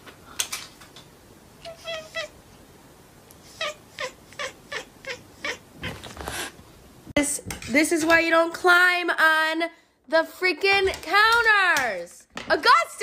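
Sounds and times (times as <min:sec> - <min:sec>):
cat meowing: 0:01.6 - 0:02.4, 0:03.5 - 0:06.2.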